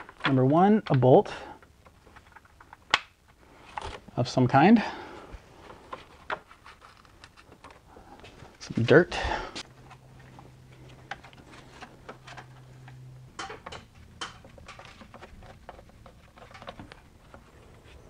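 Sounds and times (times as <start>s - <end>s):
low steady hum: 0.0s - 18.0s
small parts clicking and tapping: 12.0s - 17.4s.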